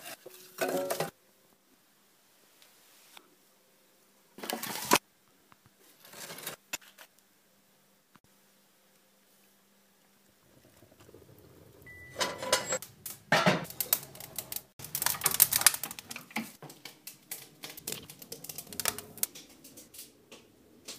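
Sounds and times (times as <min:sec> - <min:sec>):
fire crackling and popping: 0:10.3 - 0:11.9, 0:12.7 - 0:20.9.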